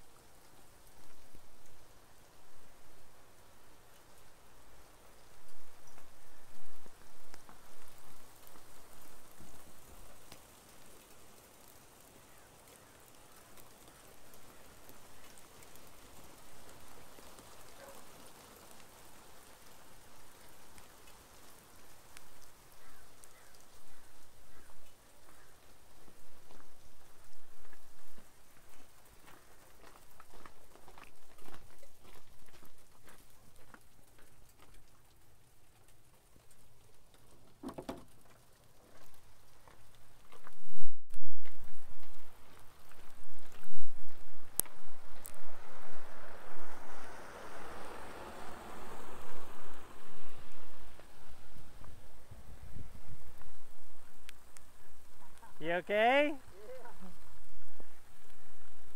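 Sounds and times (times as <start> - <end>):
hail falling on wood: 2.8 - 40.5, 41.4 - 45.3.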